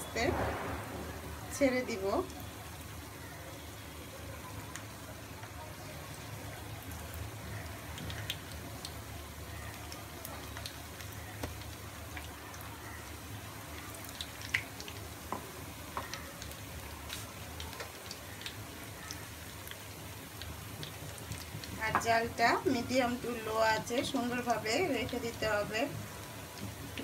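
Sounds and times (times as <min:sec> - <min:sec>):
chicken frying in oil: 0:00.0 - 0:27.0
oil popping and crackling: 0:00.1 - 0:27.0.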